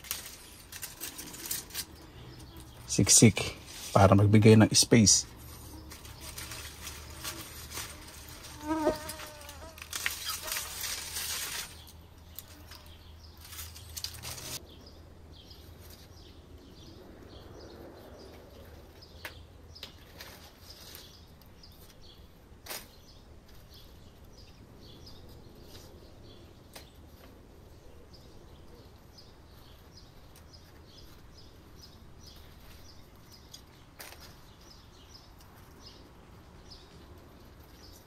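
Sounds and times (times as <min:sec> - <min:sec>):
leaves rustling as plants are pulled: 0:00.0 - 0:14.6.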